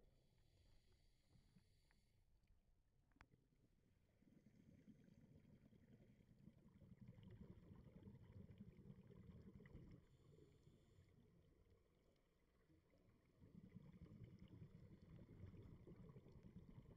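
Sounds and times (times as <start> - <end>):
muffled underwater rumble: 3.9 - 16.9.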